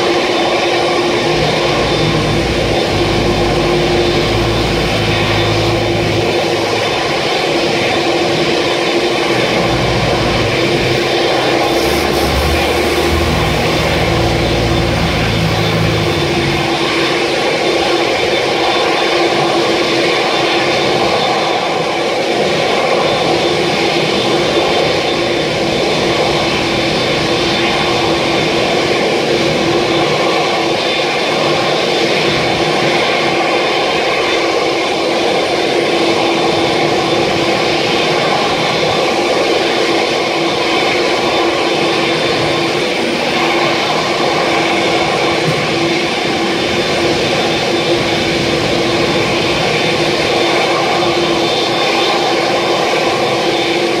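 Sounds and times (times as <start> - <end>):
jet engines idling: 0.0 - 21.4, 35.7 - 54.0.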